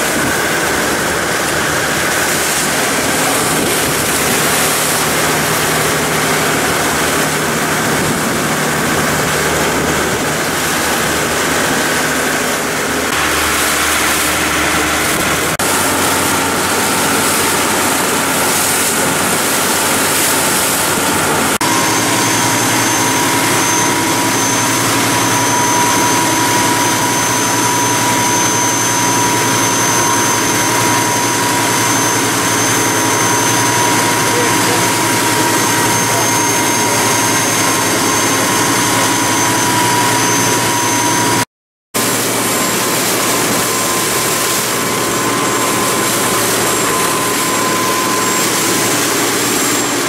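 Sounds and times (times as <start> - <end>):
water spray: 0.0 - 27.1, 42.0 - 50.0
rushing wind: 0.0 - 34.1
motorboat engine running: 0.0 - 41.4, 42.0 - 50.0.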